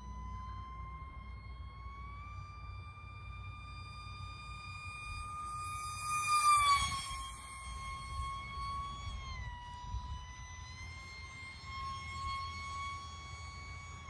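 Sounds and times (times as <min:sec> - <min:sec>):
electric motor whining: 0:00.0 - 0:14.0
wind rumble on microphone: 0:04.8 - 0:14.0.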